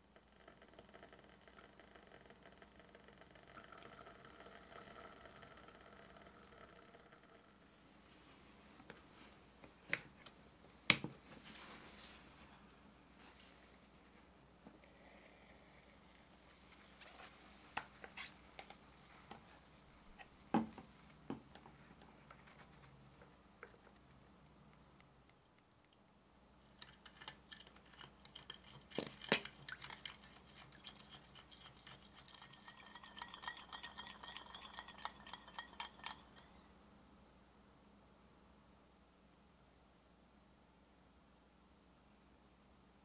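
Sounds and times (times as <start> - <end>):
wire whisk clinking in glass bowl: 26.8 - 36.6
faint ringing: 32.4 - 36.8.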